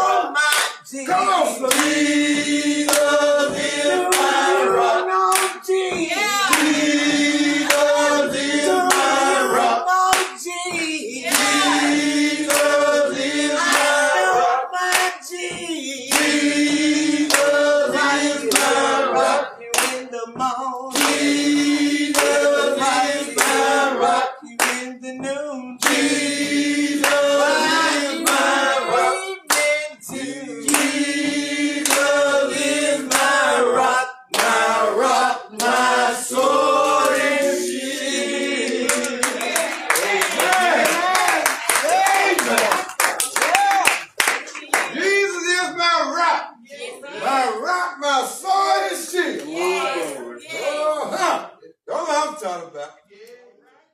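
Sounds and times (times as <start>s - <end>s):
gospel choir singing: 0.0s - 43.6s, 44.2s - 51.7s
hand clapping: 0.5s - 0.9s, 1.6s - 4.6s, 5.3s - 14.2s, 14.8s - 16.5s, 17.2s - 19.0s, 19.7s - 45.0s.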